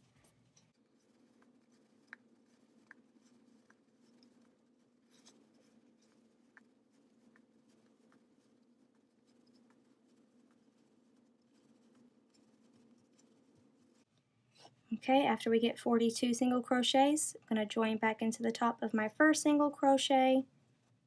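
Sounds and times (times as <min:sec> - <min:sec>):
crochet hook rubbing yarn: 0:00.0 - 0:15.3.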